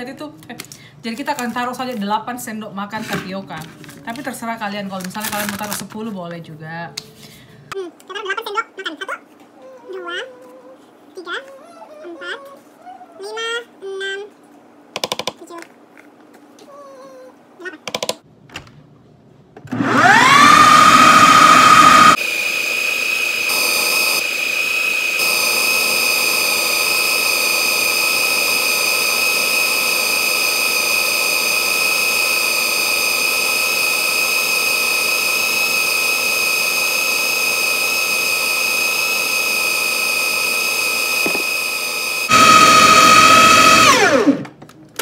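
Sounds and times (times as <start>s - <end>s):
blender running: 19.7s - 44.6s.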